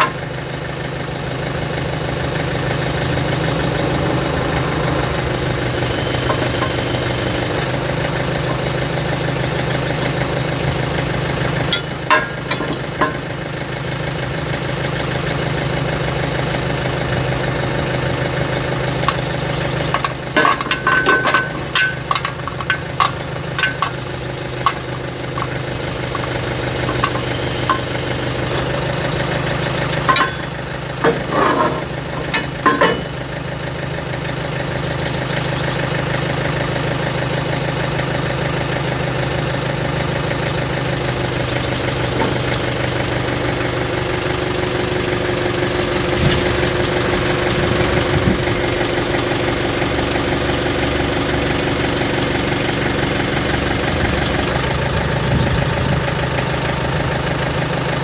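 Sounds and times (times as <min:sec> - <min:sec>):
backhoe engine idling: 0:00.0 - 0:58.0
sharp metallic clicks and knocks: 0:11.7 - 0:13.3, 0:19.9 - 0:28.9, 0:29.8 - 0:33.2.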